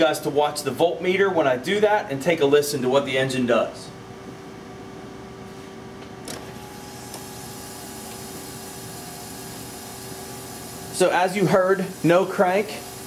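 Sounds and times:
electric fuel pump humming: 0:06.2 - 0:13.0.

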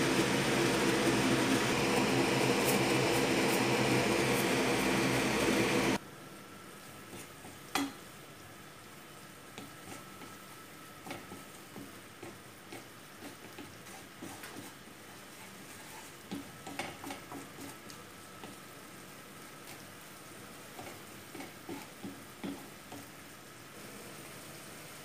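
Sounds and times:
sauce sizzling: 0:00.0 - 0:06.0, 0:06.7 - 0:25.0
spatula scraping a frying pan: 0:09.7 - 0:10.4, 0:12.2 - 0:17.8, 0:20.7 - 0:23.1.

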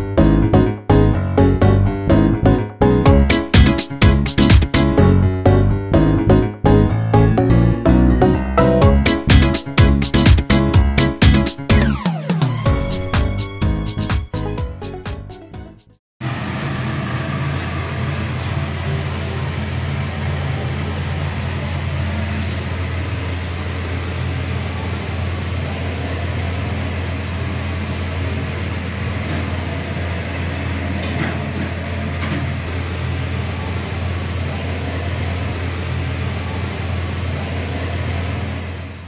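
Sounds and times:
kitchen equipment humming: 0:16.2 - 0:39.0.

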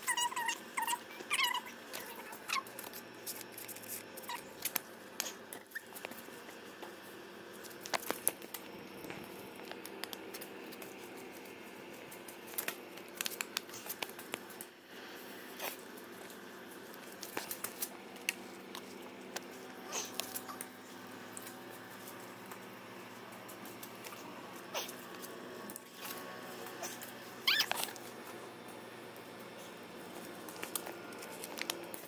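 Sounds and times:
paper crackling in fire: 0:07.5 - 0:14.6, 0:30.1 - 0:32.0.

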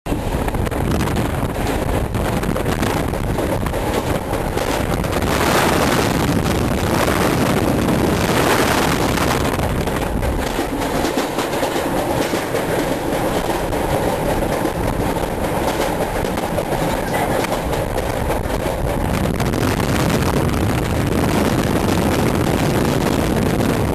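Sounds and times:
train wheels rumbling on rails: 0:00.0 - 0:23.9
rail-joint clicks: 0:01.4 - 0:07.2, 0:08.0 - 0:19.4.

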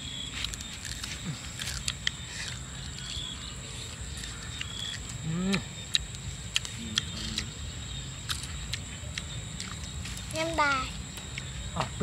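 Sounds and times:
person biting and chewing: 0:00.3 - 0:07.6, 0:08.2 - 0:10.2
person humming mmm: 0:05.2 - 0:05.7.

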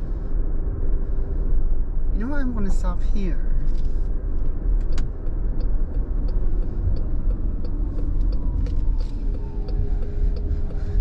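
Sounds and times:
low road rumble: 0:00.0 - 0:11.0
turn signal ticking: 0:04.4 - 0:11.0.

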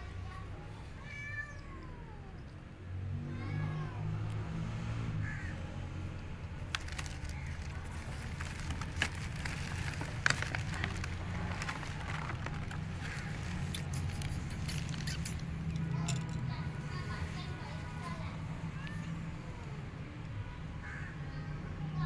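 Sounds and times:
cat crunching dry kibble: 0:06.6 - 0:16.4.

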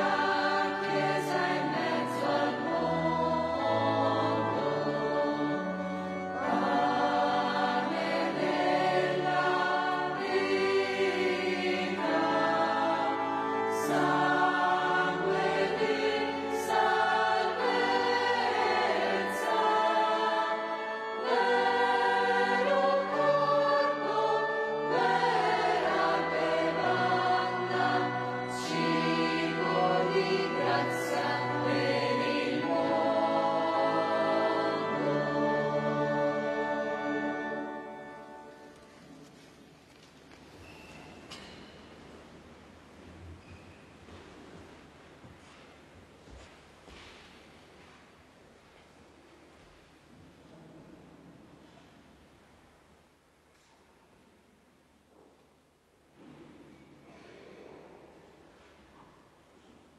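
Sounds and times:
choir singing a hymn: 0:00.0 - 0:39.1.

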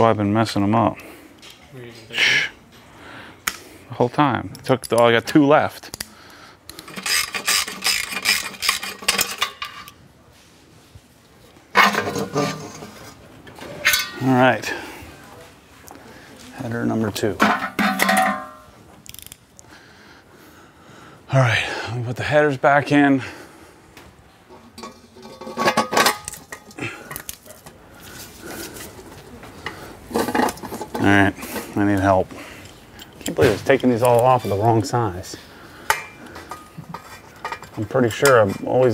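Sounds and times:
metal wrench clinking: 0:13.8 - 0:14.3, 0:17.4 - 0:19.4.

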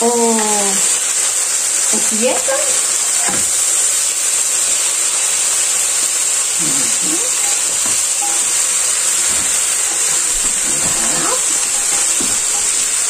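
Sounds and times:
food sizzling in frying pan: 0:00.0 - 0:13.0
spoon stirring in pan: 0:06.6 - 0:13.0.

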